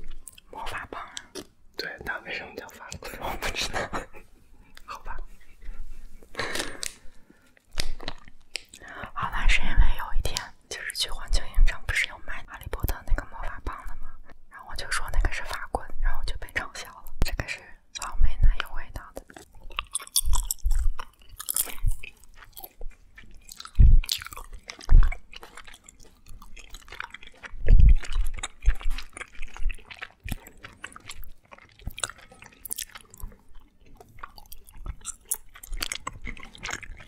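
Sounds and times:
candy crunching chewing: 0.0 - 3.2, 6.3 - 9.0, 18.8 - 37.0.

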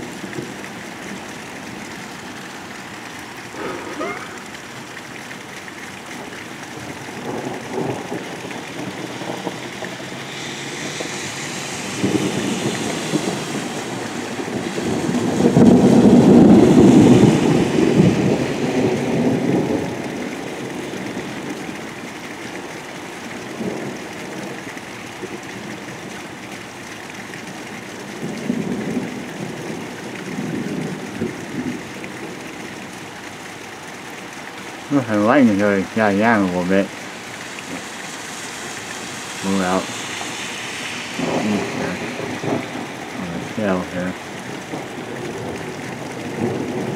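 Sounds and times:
heavy rain: 0.0 - 46.9
thunder rumbling: 3.4 - 5.1, 6.8 - 21.5, 38.7 - 46.9.

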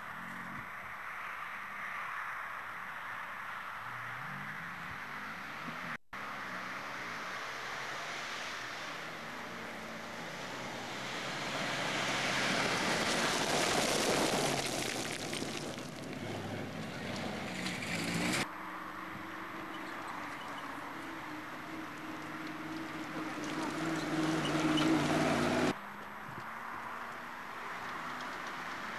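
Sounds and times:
vehicle engine revving: 20.5 - 25.8.

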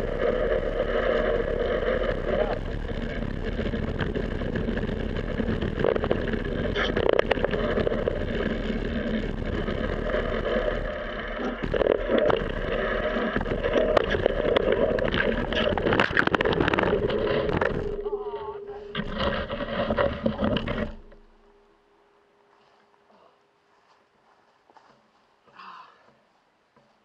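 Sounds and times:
tyre and wind noise: 0.0 - 18.3
bike rattling over bumps: 0.0 - 21.4.

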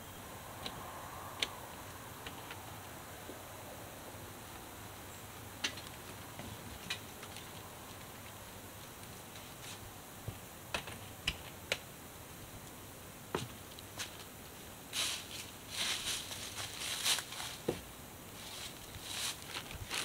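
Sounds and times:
footsteps in dry leaves: 14.9 - 20.0.

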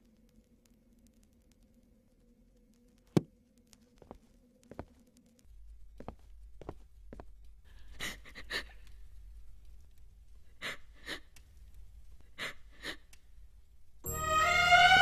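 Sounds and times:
soft rustles or steps: 2.9 - 8.0
orchestral string music: 14.0 - 15.0.

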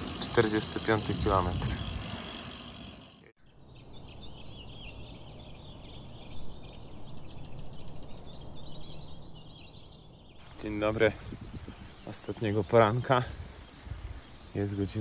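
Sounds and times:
birds chirping: 0.0 - 15.0
wind noise: 1.0 - 2.4, 10.3 - 15.0.

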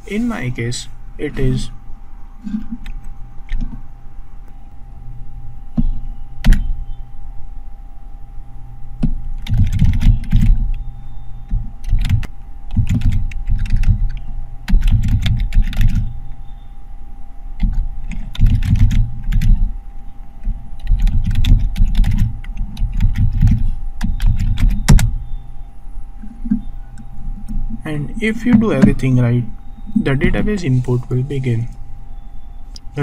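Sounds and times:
computer keyboard typing: 9.4 - 10.6, 11.8 - 16.1, 17.6 - 19.7, 20.8 - 25.1.

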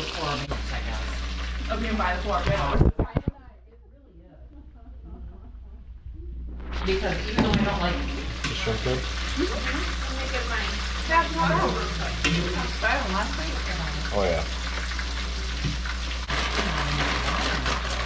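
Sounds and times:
food sizzling in hot oil: 0.0 - 2.8, 6.8 - 18.0
metal tongs stirring food: 8.4 - 10.1, 11.6 - 13.4.

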